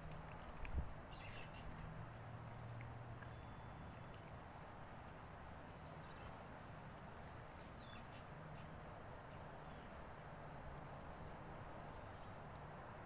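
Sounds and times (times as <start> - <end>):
faint wet clicks and squeaks: 0.0 - 10.2, 11.3 - 12.9.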